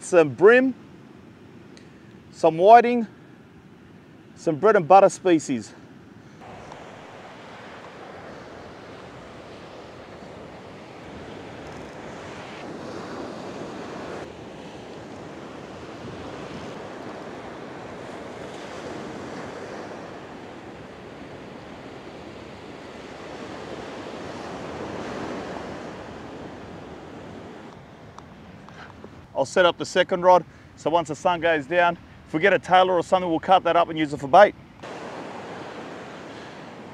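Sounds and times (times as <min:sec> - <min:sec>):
surf breaking on beach: 0:06.4 - 0:27.7, 0:34.8 - 0:36.9.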